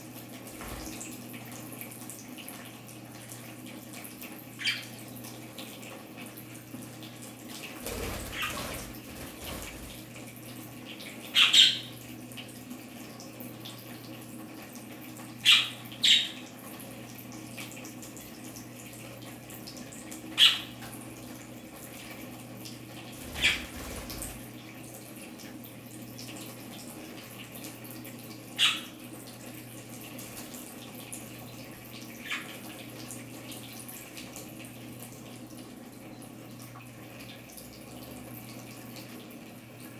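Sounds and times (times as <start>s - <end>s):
water trickling: 0.0s - 39.9s
budgerigar chirps: 11.4s - 11.9s, 20.4s - 20.7s, 28.6s - 28.9s.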